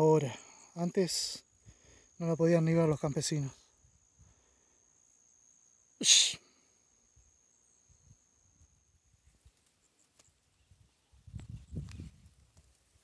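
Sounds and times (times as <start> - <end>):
sneeze-like burst of breath: 6.0 - 6.6.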